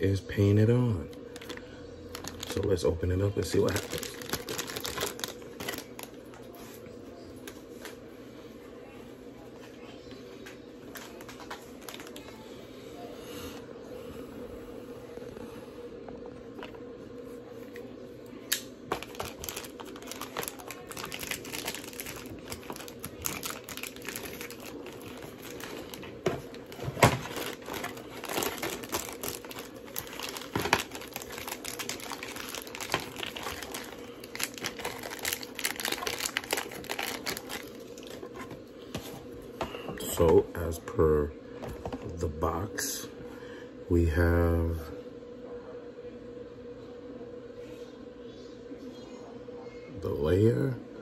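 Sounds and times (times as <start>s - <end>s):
packaging crinkling: 1.1s - 6.7s, 10.9s - 12.4s, 18.9s - 38.6s.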